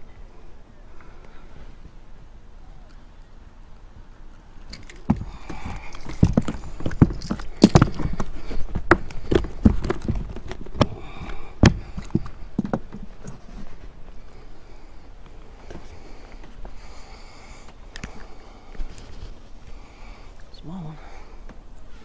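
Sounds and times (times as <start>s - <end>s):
fish thumping on boat deck: 4.7s - 13.1s.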